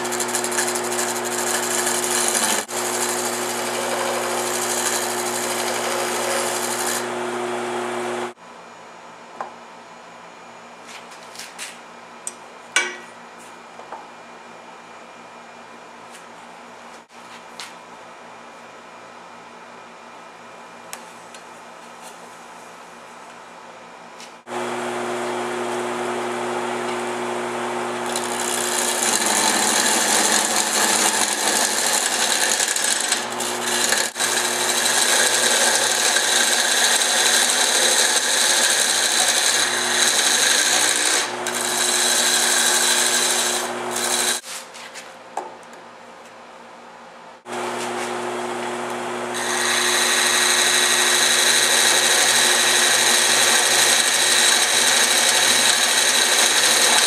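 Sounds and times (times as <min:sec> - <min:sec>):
wood lathe motor hum: 0:00.0 - 0:08.4, 0:24.5 - 0:44.4, 0:47.5 - 0:57.0.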